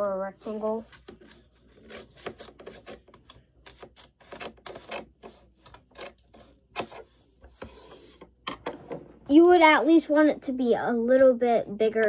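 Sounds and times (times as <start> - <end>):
scissors snipping paper: 0.7 - 7.0.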